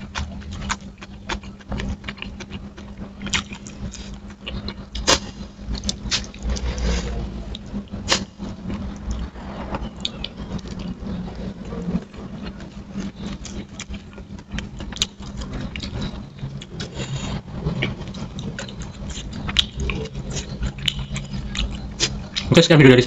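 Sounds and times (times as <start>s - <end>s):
wet chewing and mouth clicks: 0.0s - 6.7s, 12.4s - 22.5s
steady low hum: 0.0s - 23.0s.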